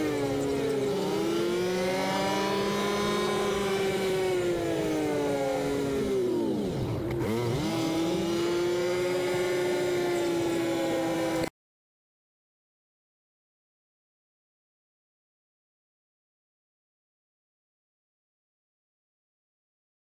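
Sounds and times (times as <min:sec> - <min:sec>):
engine revving while driving: 0:00.0 - 0:11.5.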